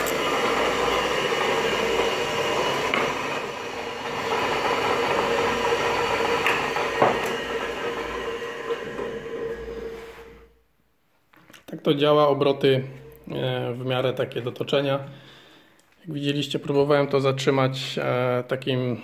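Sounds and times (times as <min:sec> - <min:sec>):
lathe motor humming and whirring: 0:00.0 - 0:10.6.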